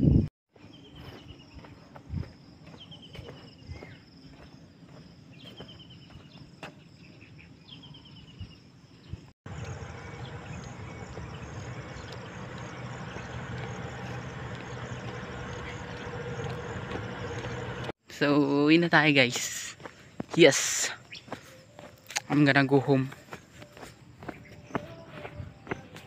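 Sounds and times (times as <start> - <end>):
low steady hum: 9.5 - 17.9
pulsing insect drone: 9.5 - 18.0.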